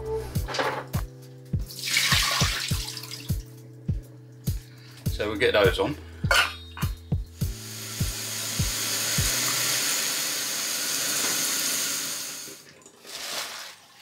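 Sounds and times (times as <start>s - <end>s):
kitchen tap running: 1.7s - 3.4s, 7.4s - 14.0s.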